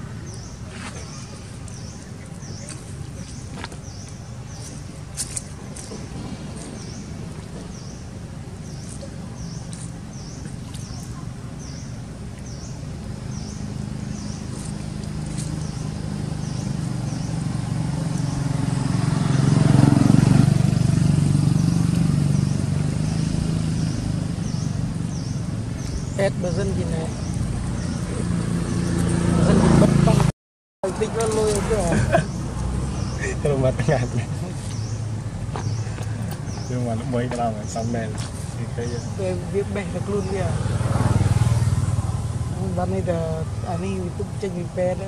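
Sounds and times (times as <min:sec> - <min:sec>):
vehicle engine hum: 0:00.0 - 0:45.0.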